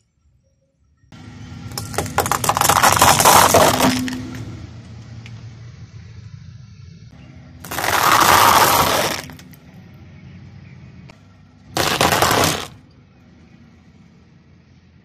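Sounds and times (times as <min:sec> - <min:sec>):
dry pasta crunching under tyre: 0:01.8 - 0:04.2, 0:07.6 - 0:09.5, 0:11.8 - 0:12.8.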